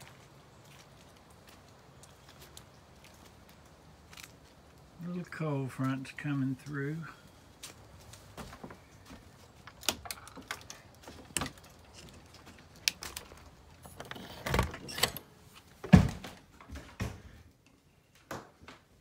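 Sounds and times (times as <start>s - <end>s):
footsteps: 0.0s - 4.8s, 5.8s - 13.6s.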